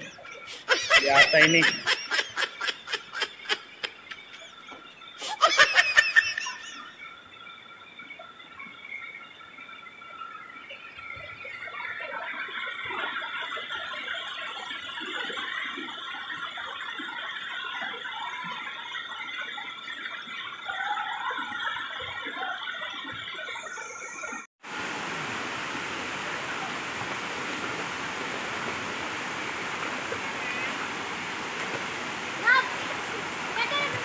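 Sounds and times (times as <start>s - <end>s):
water rushing over rocks: 11.4s - 34.0s.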